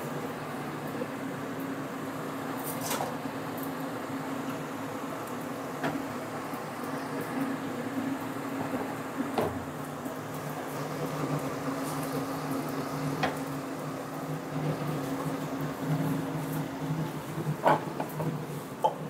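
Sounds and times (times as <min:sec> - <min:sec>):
range hood fan humming: 0:00.0 - 0:19.0.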